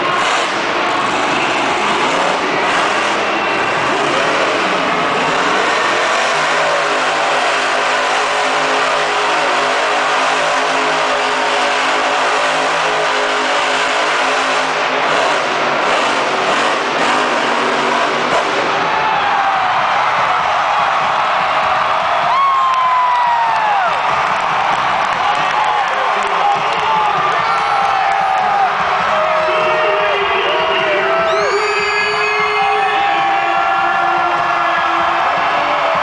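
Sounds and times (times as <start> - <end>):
truck engine revving: 0.0 - 19.0.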